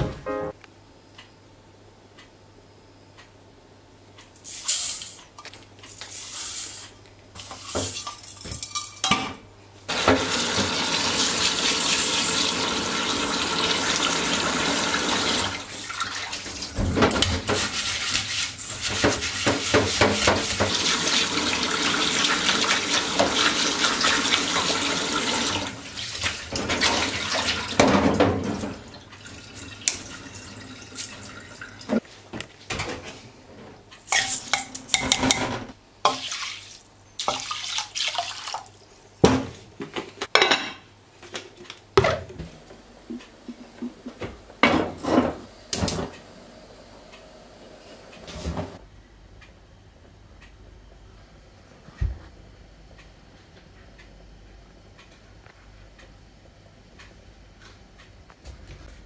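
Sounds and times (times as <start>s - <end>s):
tap water running: 9.9s - 32.0s, 36.0s - 39.3s
metal pan clinking against sink: 34.1s - 36.2s.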